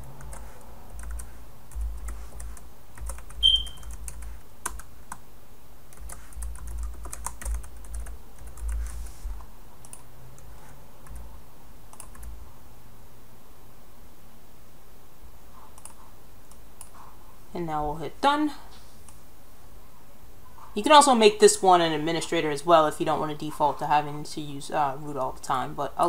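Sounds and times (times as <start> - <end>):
computer keyboard typing: 0.1 - 5.2, 5.9 - 9.0, 9.8 - 11.2, 11.9 - 12.4, 15.8 - 16.9
short high tone: 3.4 - 3.8.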